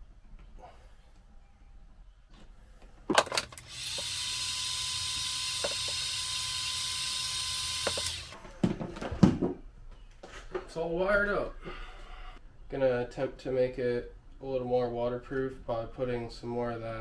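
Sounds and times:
heat gun fan whine: 3.2s - 8.4s.

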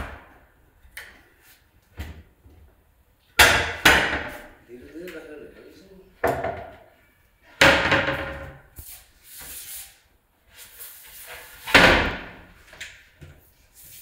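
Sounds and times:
cabinet doors banging shut: 3.4s - 4.5s, 6.2s - 6.8s, 7.6s - 8.6s, 11.7s - 12.5s.

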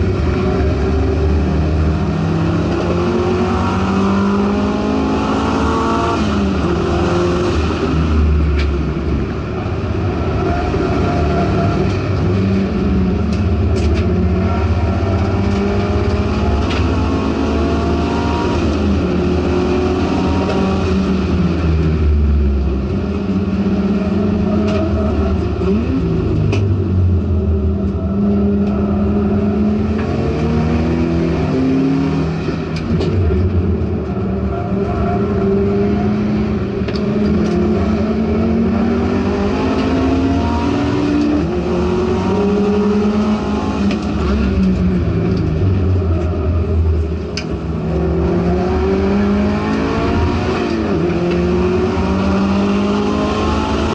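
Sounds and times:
race car engine accelerating: 0.0s - 53.9s.

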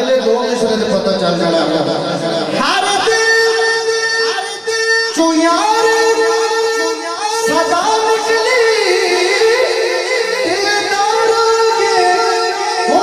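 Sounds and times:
man singing through a microphone: 0.0s - 13.0s.

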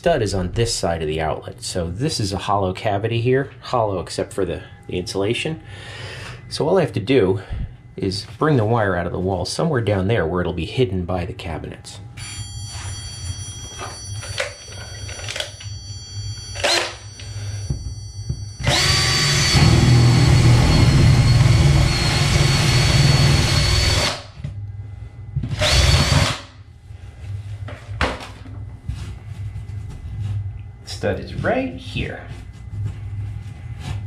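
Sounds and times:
power drill whining: 16.5s - 17.6s, 18.6s - 24.3s, 25.6s - 26.4s.

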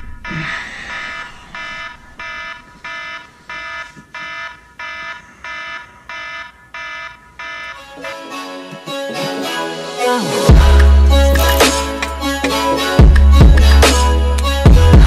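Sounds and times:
smartphone alarm beeping: 0.1s - 8.2s.

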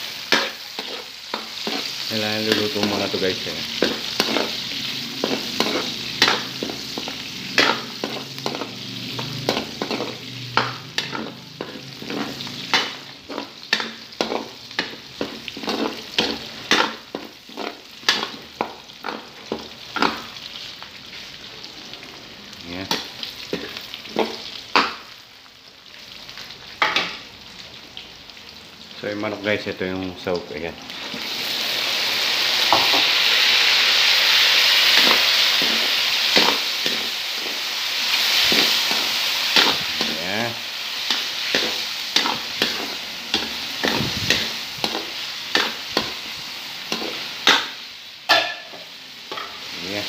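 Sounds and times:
garlic and onion sizzling in oil: 0.0s - 50.0s
metal ladle scraping a wok: 0.2s - 2.8s, 3.8s - 19.2s, 34.7s - 40.2s, 41.0s - 49.7s.

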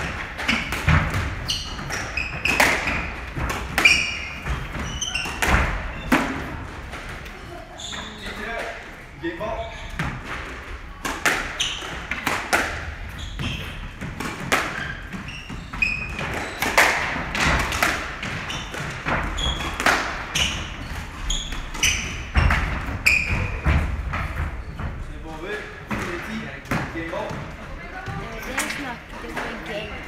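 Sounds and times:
shoes squeaking on wooden floor: 0.0s - 6.6s, 7.6s - 10.2s, 11.5s - 12.2s, 12.9s - 30.0s
squash ball hits: 0.0s - 7.4s, 10.0s - 24.9s.

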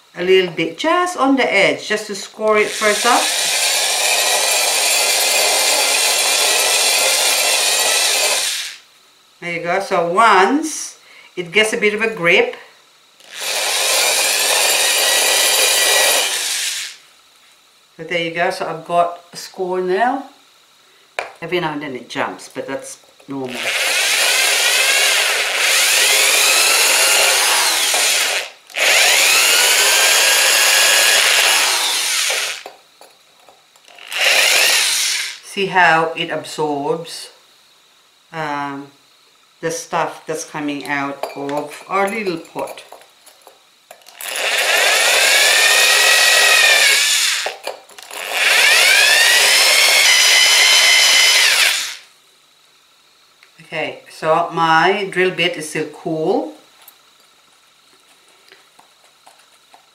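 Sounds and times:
drill grinding into ceramic: 2.4s - 8.8s, 13.2s - 17.0s, 23.4s - 32.8s, 33.8s - 35.5s, 44.0s - 52.1s.

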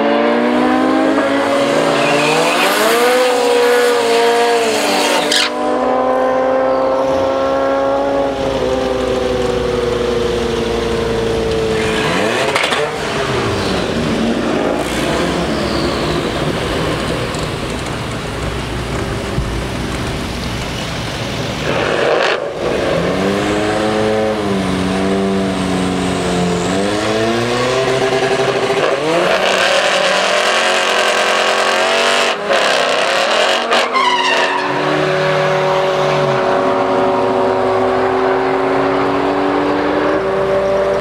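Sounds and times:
car engine revving hard: 0.0s - 18.2s, 21.6s - 41.0s
tyre squeal: 1.6s - 5.6s, 14.8s - 17.0s, 33.7s - 35.5s.

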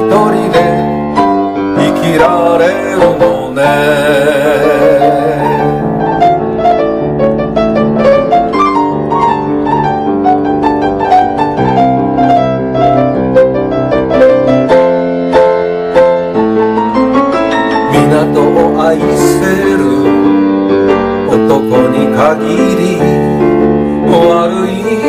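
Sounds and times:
solo piano: 0.0s - 25.0s.

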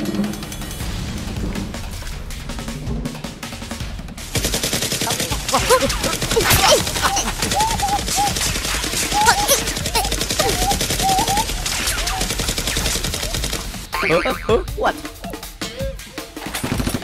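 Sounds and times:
rapid toy blaster fire: 8.0s - 13.9s.

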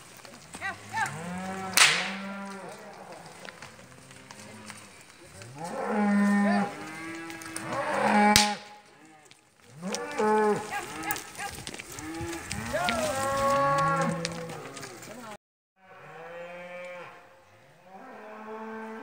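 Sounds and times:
cattle mooing and bawling: 0.9s - 4.8s, 5.4s - 15.0s
sharp crack: 1.0s - 2.6s, 7.2s - 8.8s.

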